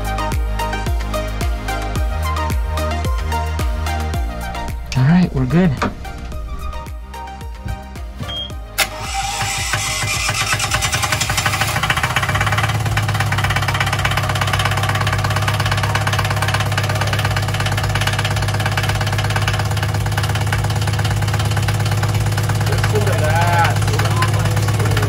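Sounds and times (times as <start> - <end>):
diesel engine idling: 8.7 - 25.0.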